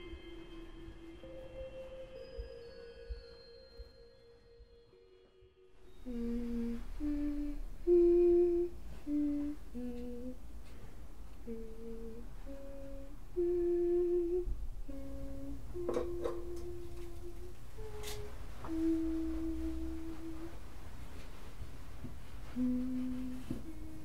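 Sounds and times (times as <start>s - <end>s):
woman humming slow tune: 0.0s - 10.5s, 11.4s - 20.7s, 22.4s - 24.0s
steady tone: 0.0s - 10.6s.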